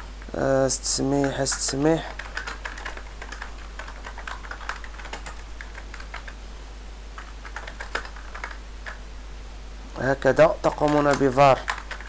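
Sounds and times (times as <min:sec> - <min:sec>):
low steady hum: 0:00.0 - 0:12.0
keyboard typing clicks: 0:01.2 - 0:06.4, 0:07.2 - 0:09.0, 0:10.7 - 0:12.0.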